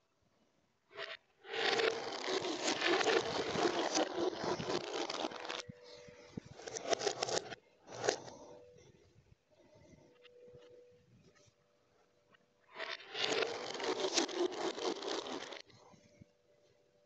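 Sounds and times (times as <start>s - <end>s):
marbles rattling through tubes: 1.0s - 8.4s, 12.8s - 15.6s
marble clicks: 1.0s - 8.6s, 12.7s - 15.7s.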